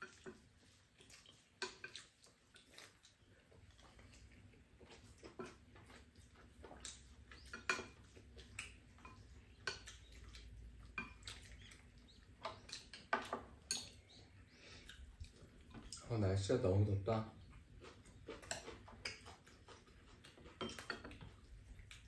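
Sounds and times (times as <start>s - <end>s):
chopsticks clinking in bowls: 6.6s - 11.8s, 12.4s - 14.2s, 18.3s - 22.0s.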